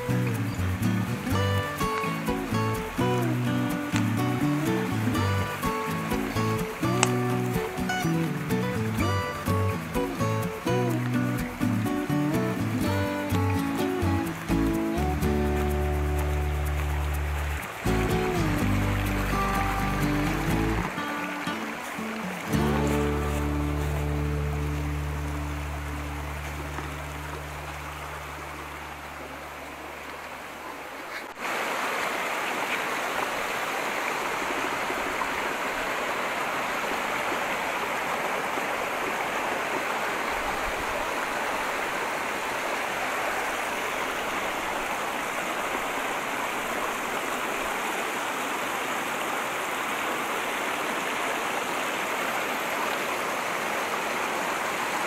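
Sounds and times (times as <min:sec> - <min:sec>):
background music: 0:00.0 - 0:27.2
brook rushing over rocks: 0:00.0 - 0:55.0.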